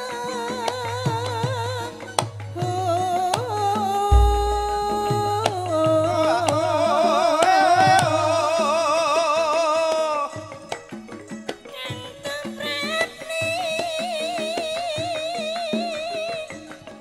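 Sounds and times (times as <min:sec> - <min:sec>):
gamelan music: 0:04.1 - 0:05.2.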